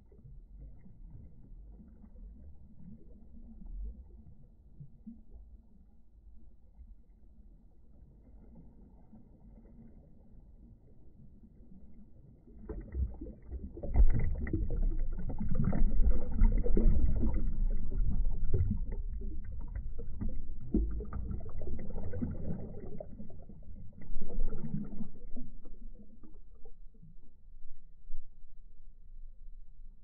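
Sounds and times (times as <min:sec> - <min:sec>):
muffled underwater sloshing: 0:00.0 - 0:30.0.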